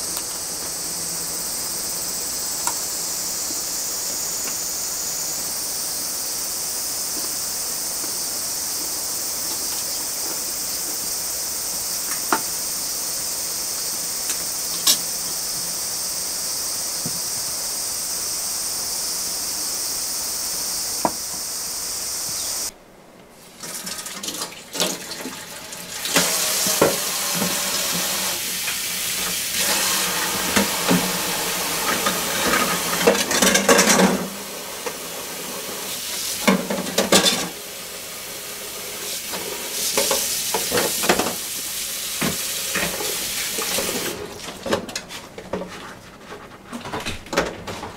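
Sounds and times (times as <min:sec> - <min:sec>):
steady high hiss: 0:00.0 - 0:44.5
plates and cups clattering: 0:31.9 - 0:34.3, 0:36.4 - 0:37.6.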